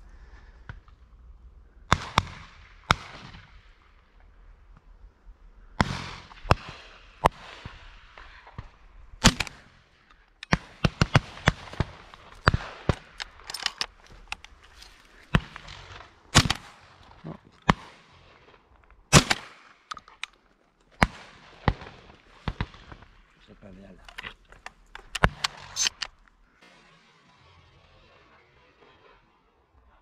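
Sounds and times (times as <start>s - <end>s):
shotgun shots: 5.8s - 9.8s, 10.4s - 14.6s, 15.2s - 20.3s, 21.0s - 23.9s.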